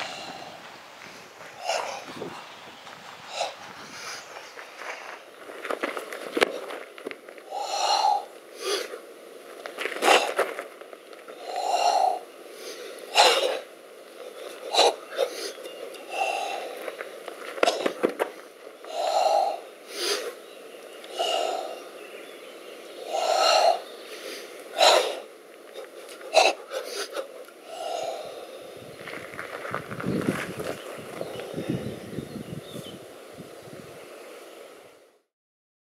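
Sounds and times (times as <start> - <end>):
group breathing forcefully: 0.0 - 2.5, 3.2 - 5.2, 6.0 - 9.1, 11.3 - 20.4, 21.1 - 22.0, 23.0 - 28.8.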